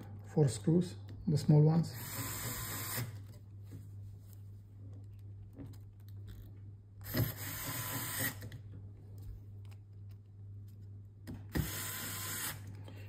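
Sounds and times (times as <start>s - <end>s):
electric screwdriver running: 2.0s - 3.1s, 7.0s - 8.4s, 11.6s - 12.6s.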